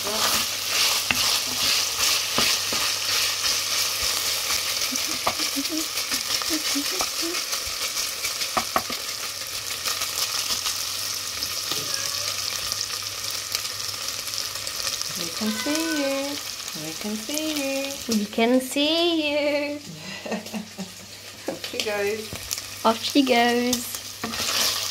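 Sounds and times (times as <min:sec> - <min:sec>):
bacon sizzling in a pan: 0:00.0 - 0:24.9
utensil knocking against pan: 0:08.6 - 0:09.0.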